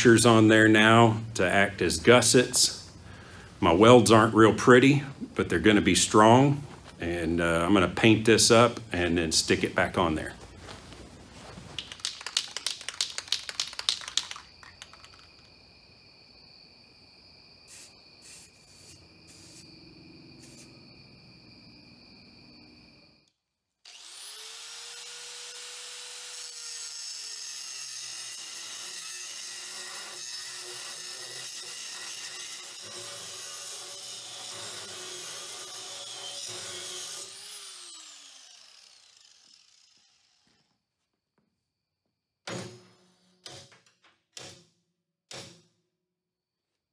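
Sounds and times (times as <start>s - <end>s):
angle grinder running: 23.9s - 40.6s.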